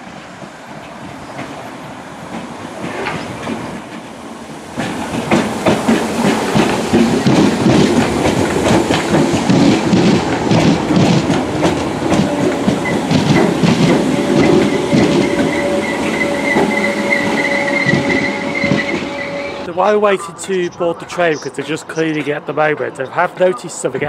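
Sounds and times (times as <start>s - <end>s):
train wheels clicking over rail joints: 4.7s - 19.7s
train brakes squealing: 12.4s - 20.4s.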